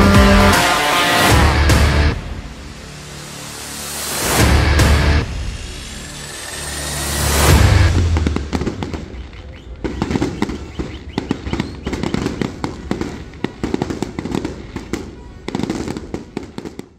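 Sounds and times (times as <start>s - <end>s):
fireworks booming: 5.2s - 16.9s
fireworks cracking and popping: 5.8s - 16.9s.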